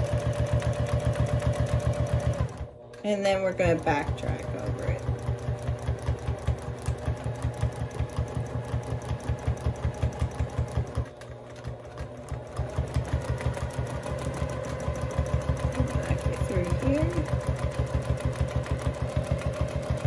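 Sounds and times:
sewing machine stitching: 0.0s - 20.0s.

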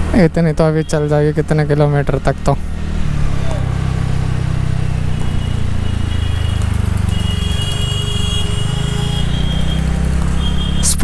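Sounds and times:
scooter engine rumble: 2.4s - 10.9s.

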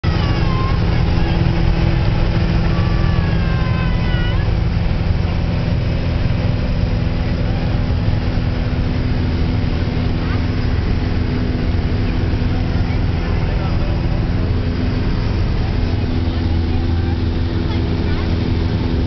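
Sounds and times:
airplane engine droning: 0.0s - 19.0s.

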